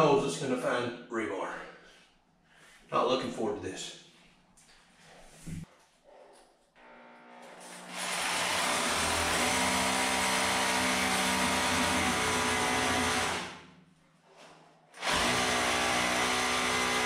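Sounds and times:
hammer drill boring into concrete: 6.8 - 13.6, 15.0 - 17.0.

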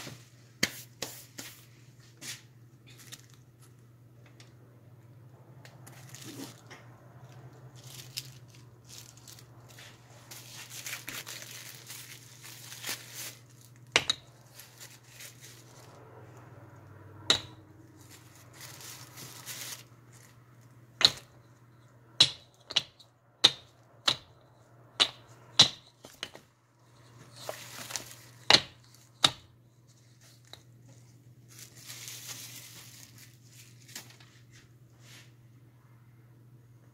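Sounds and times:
plastic bags crinkling: 2.8 - 3.8, 5.7 - 21.6, 26.0 - 29.2, 29.8 - 34.4.

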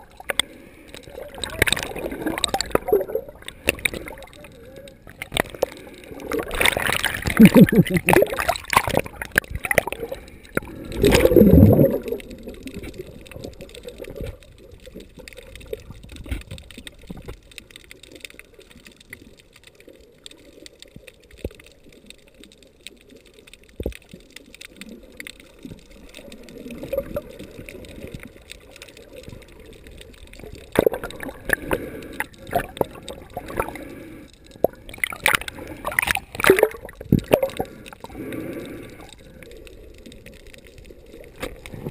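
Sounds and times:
water rush: 0.0 - 14.4, 25.9 - 41.9
underwater gurgling: 0.0 - 41.9.

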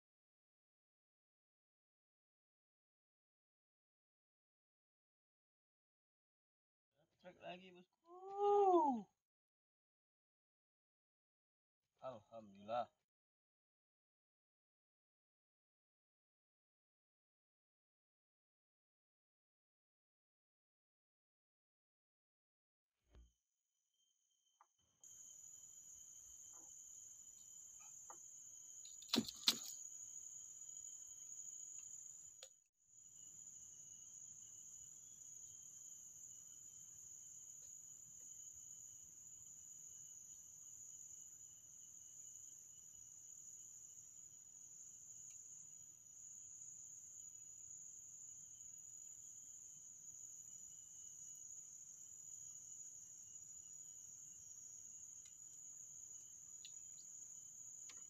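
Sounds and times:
insects buzzing: 25.0 - 58.0.

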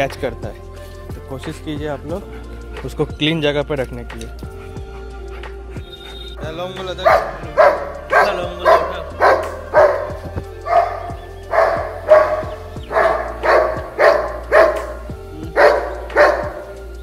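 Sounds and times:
dog barking: 7.0 - 16.9.

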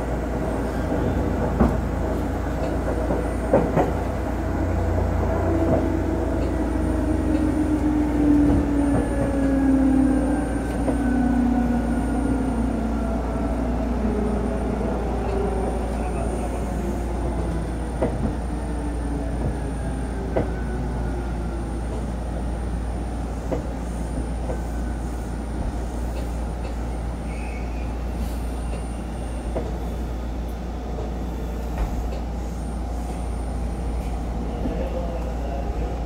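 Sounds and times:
train wheels rumbling on rails: 0.0 - 36.0
rail joint clicks: 1.0 - 4.5, 5.1 - 9.6, 14.8 - 16.2, 17.3 - 18.6, 19.3 - 20.7, 23.4 - 24.7, 25.6 - 27.5, 28.2 - 29.8, 30.4 - 32.3.

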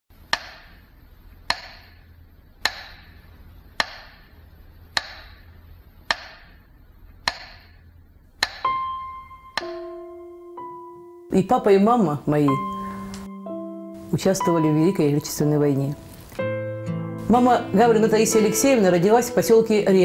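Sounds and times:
held musical tone: 8.6 - 20.0.

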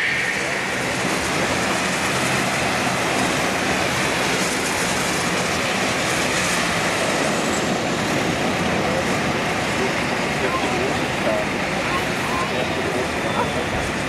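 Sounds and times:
distant jet engines roaring: 0.0 - 14.0.

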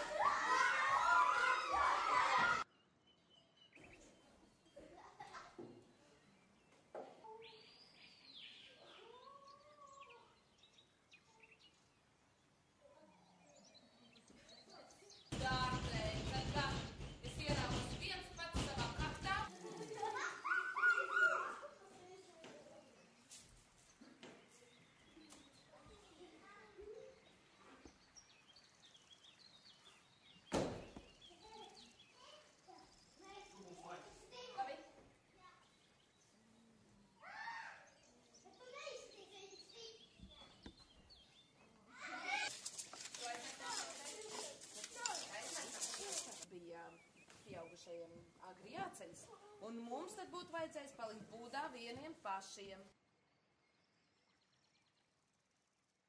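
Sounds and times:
bird-like chirps: 2.7 - 15.3, 19.5 - 23.3
bird-like chirps and whistles: 20.3 - 21.7
loud thump: 30.5 - 31.1.

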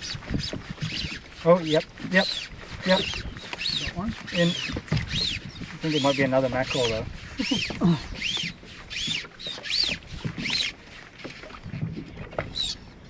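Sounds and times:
fishing line squeaky zip: 7.3 - 11.2.

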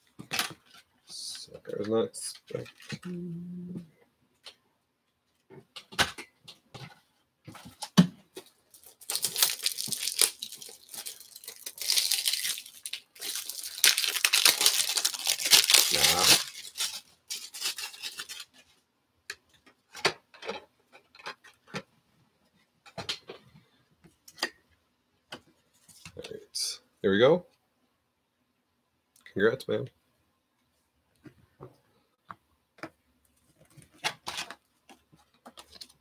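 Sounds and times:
card pack wrapper tearing and crinkling: 8.8 - 18.6.

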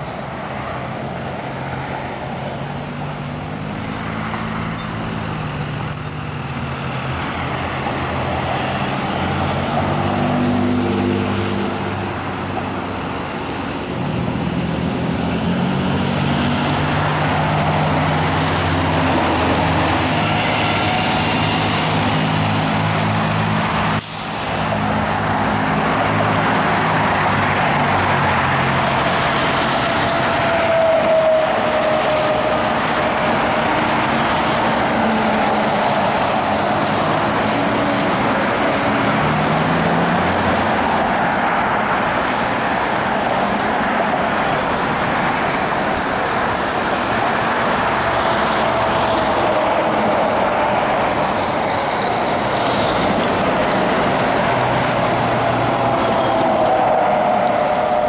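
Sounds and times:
cars and trucks driving: 0.0 - 58.0
brief squeal: 2.6 - 7.2.

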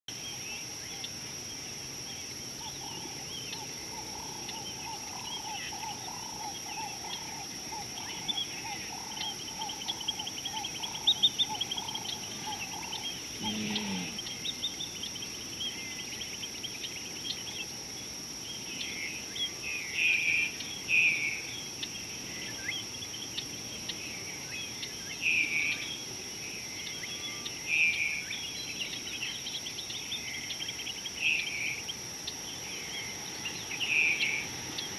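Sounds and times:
birds chirping and calling: 2.6 - 17.7.

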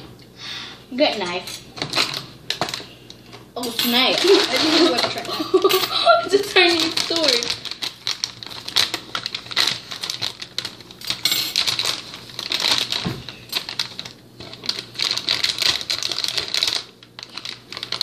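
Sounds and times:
plastic bag crinkling: 3.7 - 18.0.

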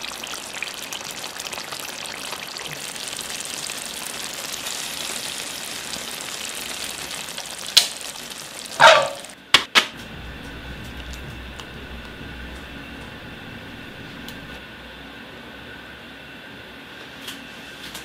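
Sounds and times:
gravy bubbling and sizzling: 0.0 - 14.6
loud pops from pan: 7.7 - 8.1.

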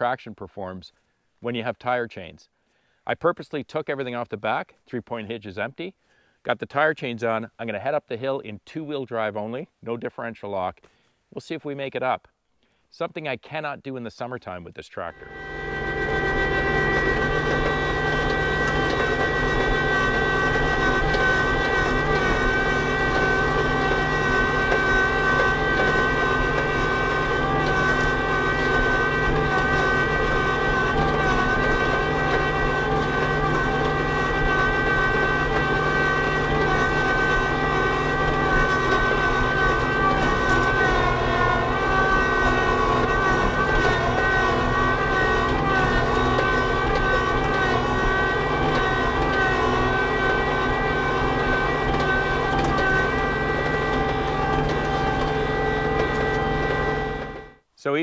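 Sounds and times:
tractor diesel engine under load: 15.1 - 57.6
steady high whine: 15.1 - 58.0.

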